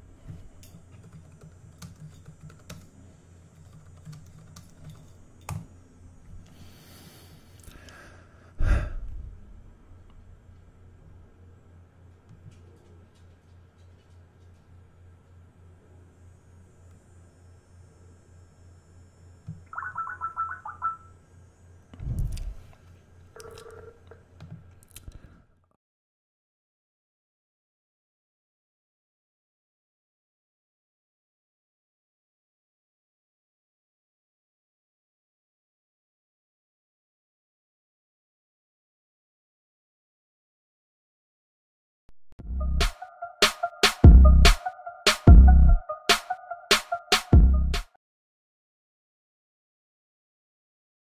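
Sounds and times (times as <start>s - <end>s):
faint low hum: 0.0s - 25.6s
typing on computer keyboard: 0.7s - 2.9s, 3.5s - 5.6s
electronic call alert beeps: 19.7s - 21.1s.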